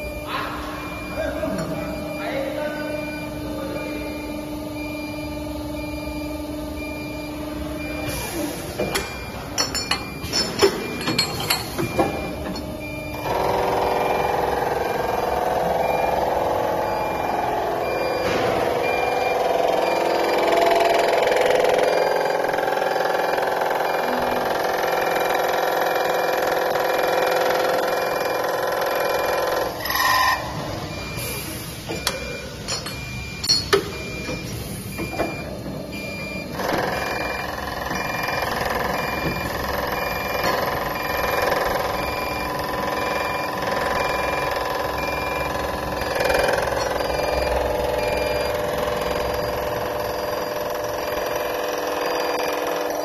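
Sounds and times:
machine clamps clicking and clunking: 0:08.8 - 0:13.4, 0:31.9 - 0:35.7.

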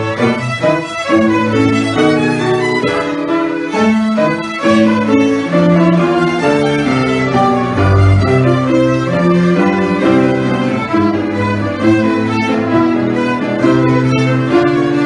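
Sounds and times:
string ensemble playing melody: 0:00.0 - 0:15.0.

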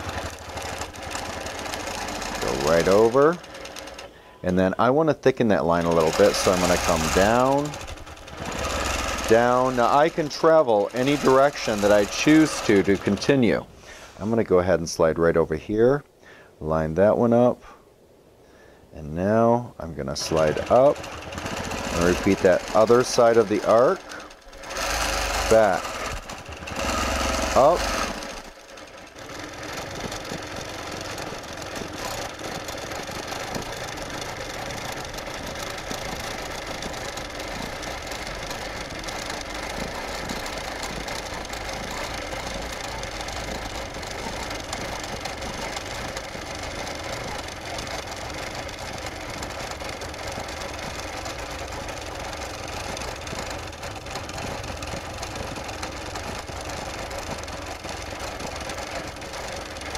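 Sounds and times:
quilting machine stitching: 0:00.0 - 0:04.8, 0:05.6 - 0:14.4, 0:20.0 - 0:59.9.

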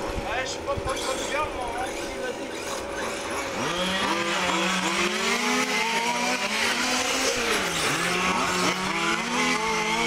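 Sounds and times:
electric motor whine: 0:00.0 - 0:10.0.

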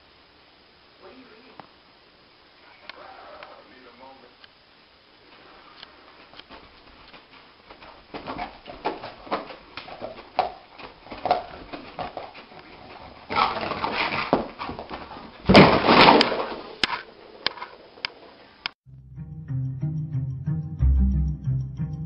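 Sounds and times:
dog scrambling: 0:07.3 - 0:16.7.

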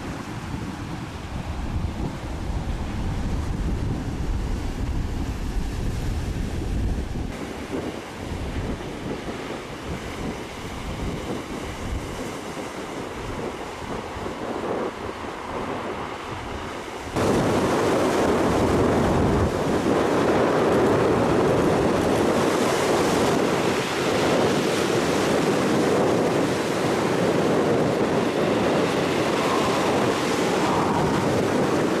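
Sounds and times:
wind buffeting microphone: 0:00.0 - 0:32.0
waves breaking on pebble beach: 0:17.2 - 0:32.0.

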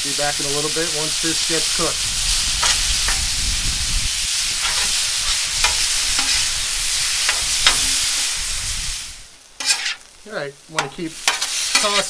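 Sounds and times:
meat sizzling on a griddle: 0:00.0 - 0:12.0
metal spatula scraping steel: 0:02.6 - 0:03.3, 0:04.5 - 0:08.2, 0:09.6 - 0:10.1, 0:10.8 - 0:12.0.

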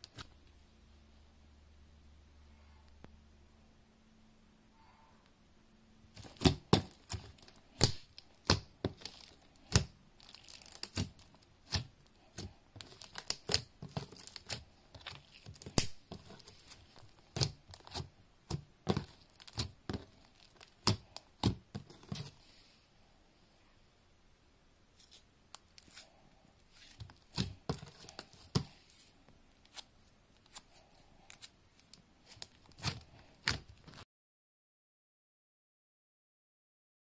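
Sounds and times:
slime clicking and popping: 0:06.2 - 0:11.9.

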